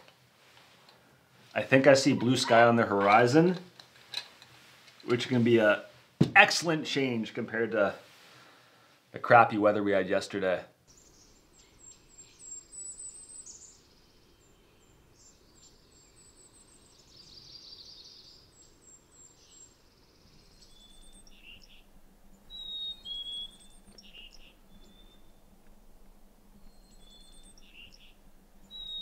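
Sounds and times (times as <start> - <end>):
high thin bird chirps: 19.1 - 25.6, 26.5 - 29.0
whistled bird phrases: 22.5 - 25.3.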